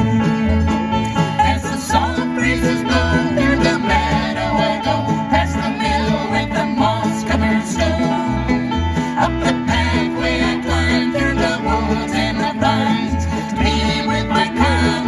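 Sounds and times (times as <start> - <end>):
fiddle melody: 0.0 - 15.0
strummed acoustic guitars: 0.0 - 15.0.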